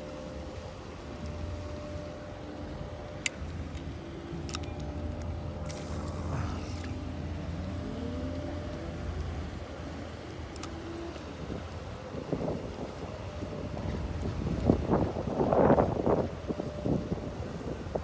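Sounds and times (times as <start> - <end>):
steady low hum: 0.0 - 18.0
sharp clicks: 3.2 - 7.0.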